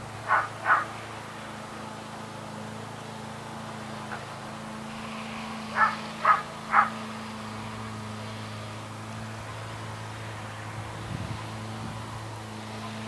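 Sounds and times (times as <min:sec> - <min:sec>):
short animal calls: 0:00.2 - 0:00.9, 0:05.7 - 0:07.0.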